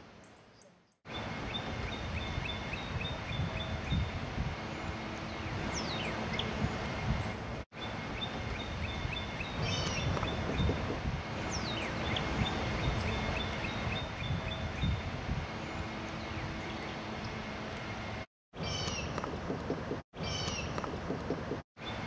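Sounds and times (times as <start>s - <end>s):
outdoor noise with low rumble: 0.0s - 22.0s
bird chips: 18.6s - 19.4s, 20.2s - 21.4s.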